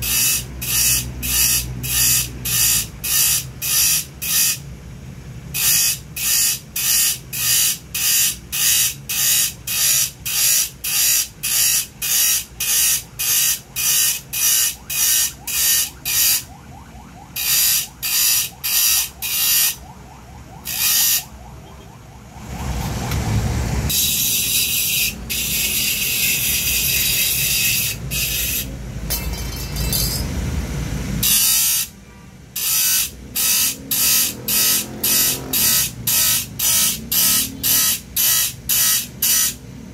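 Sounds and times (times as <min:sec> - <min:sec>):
grinding disc rasping saw teeth: 0:00.0 - 0:04.6, 0:05.6 - 0:16.5, 0:17.4 - 0:19.8, 0:20.6 - 0:21.3, 0:23.9 - 0:30.4, 0:31.2 - 0:31.9, 0:32.6 - 0:39.6.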